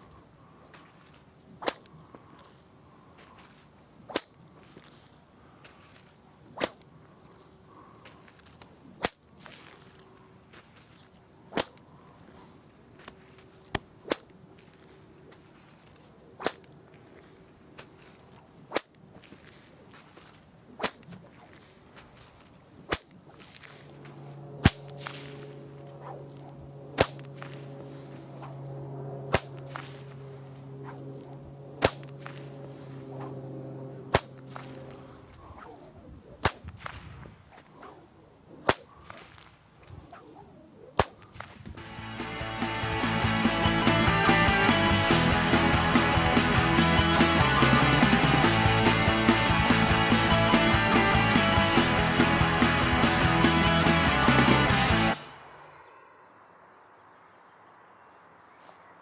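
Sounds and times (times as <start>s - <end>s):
low hum: 0.0s - 39.6s, 40.4s - 58.9s
whip cracking: 0.7s - 2.4s, 3.2s - 7.0s, 7.7s - 12.4s, 13.0s - 14.4s, 16.4s - 16.8s, 17.8s - 33.5s, 34.1s - 40.4s, 41.0s - 47.9s.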